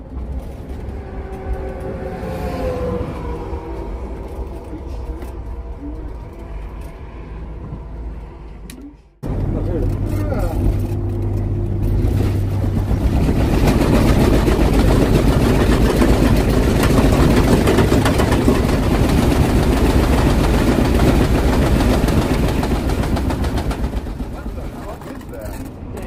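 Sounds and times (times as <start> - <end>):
engine and road noise: 0.0 - 26.0
coach rattling and clattering: 9.2 - 26.0.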